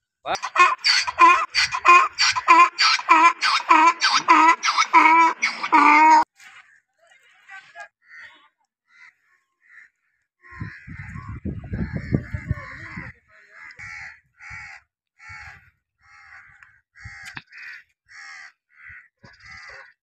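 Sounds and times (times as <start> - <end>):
crow cawing: 0.4 - 6.2, 8.9 - 11.0, 13.5 - 20.0.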